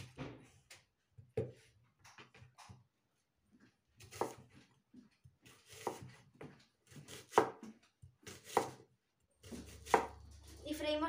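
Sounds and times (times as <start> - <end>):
knife chopping onion on wood: 1.2 - 2.9, 4.0 - 10.3.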